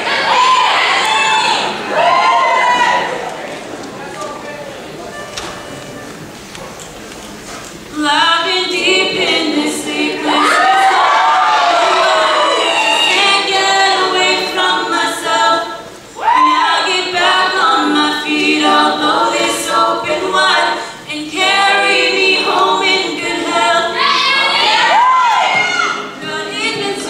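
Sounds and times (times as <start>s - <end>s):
women's backing vocal harmonies: 7.9s - 27.0s.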